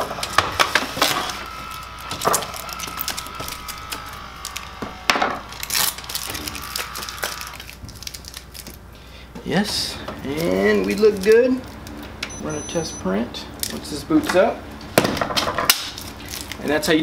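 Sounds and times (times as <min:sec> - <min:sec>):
printer motor whine: 0:00.0 - 0:08.0, 0:12.2 - 0:13.1.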